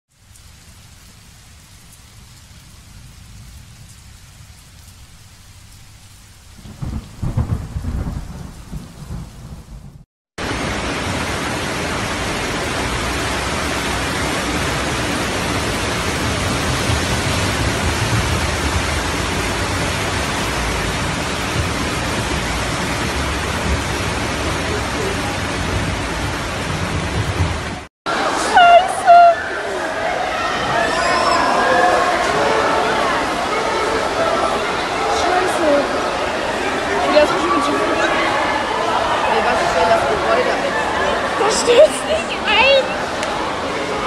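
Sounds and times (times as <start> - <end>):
heavy rain and rushing floodwater: 0.1 - 9.6, 10.4 - 44.0
quiet rain: 0.1 - 44.0
thunderclap rumbling: 6.5 - 28.3.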